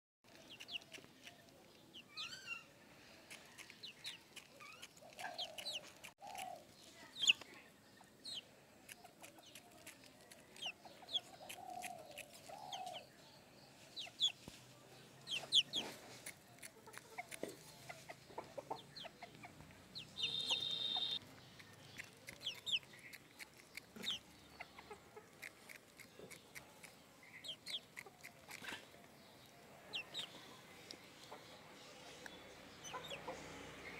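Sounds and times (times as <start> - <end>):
rooster clucking: 15.4 - 21.2.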